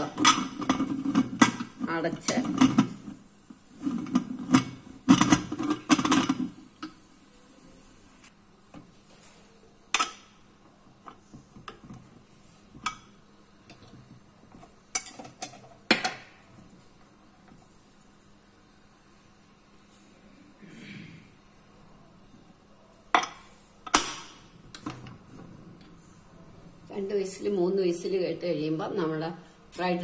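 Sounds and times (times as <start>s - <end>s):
metal lid clanking and scraping: 0.0s - 3.1s, 3.8s - 6.6s.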